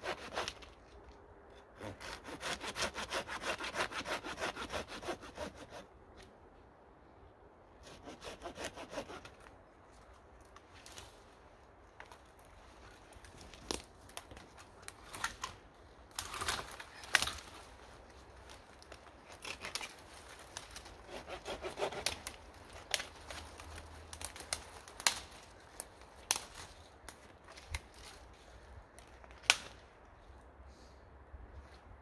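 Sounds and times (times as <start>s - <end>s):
dry branches snapping: 11.9s - 21.1s, 21.9s - 28.2s, 28.9s - 30.0s.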